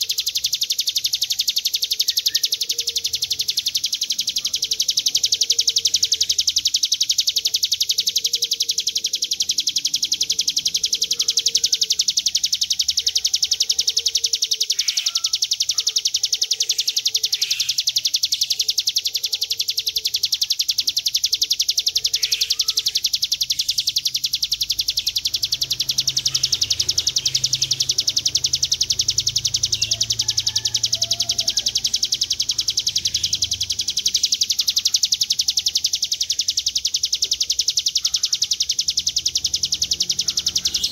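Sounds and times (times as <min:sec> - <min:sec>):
bird high buzzing trill: 0:00.0 - 0:40.9.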